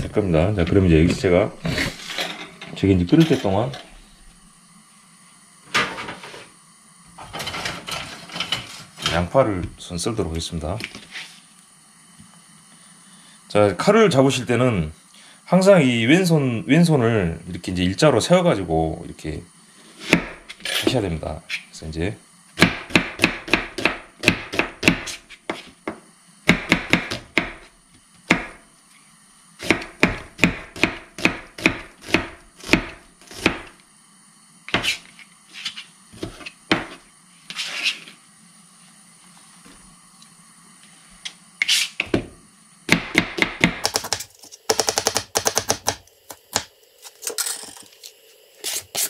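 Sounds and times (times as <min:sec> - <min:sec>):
knife chopping on cutting board: 0:22.6 - 0:25.7, 0:26.5 - 0:27.6, 0:34.7 - 0:35.1, 0:42.9 - 0:46.7.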